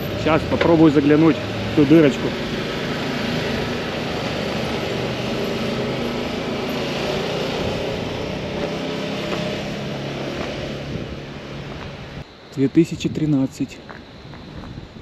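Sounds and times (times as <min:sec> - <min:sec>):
engine idling: 0:00.0 - 0:12.2
steady hiss: 0:10.9 - 0:15.0.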